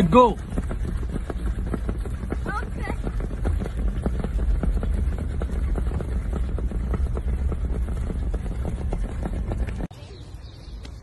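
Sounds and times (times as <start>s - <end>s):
car rumbling slowly: 0.0s - 11.0s
horses' hooves on sand: 0.0s - 11.0s.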